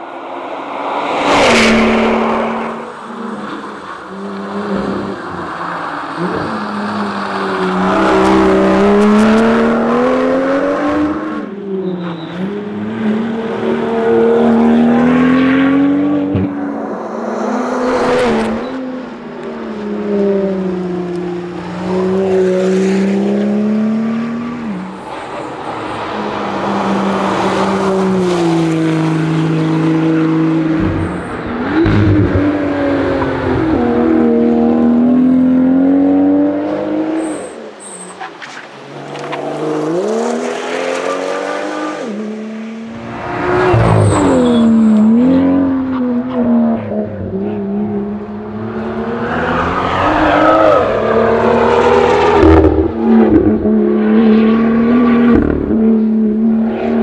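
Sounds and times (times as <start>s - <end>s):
car engine revving through gears: 1.2s - 24.9s, 25.9s - 38.0s, 38.9s - 57.0s.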